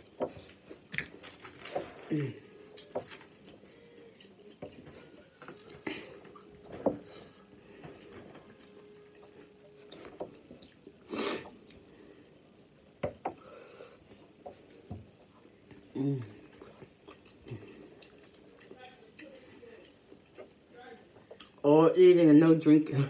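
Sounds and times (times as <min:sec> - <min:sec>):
person chewing: 0:00.0 - 0:12.0, 0:13.5 - 0:20.6, 0:21.2 - 0:21.6.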